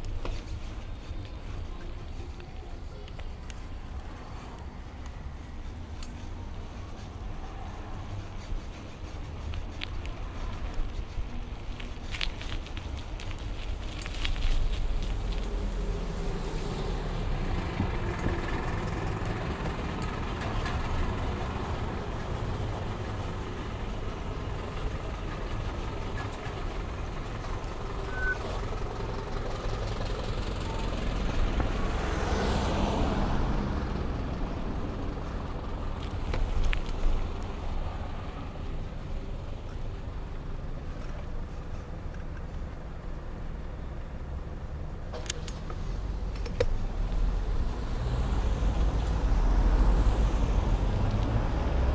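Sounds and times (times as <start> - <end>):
road traffic rumble: 0.0 - 51.9
vehicle passing close: 14.7 - 39.3, 45.5 - 51.9.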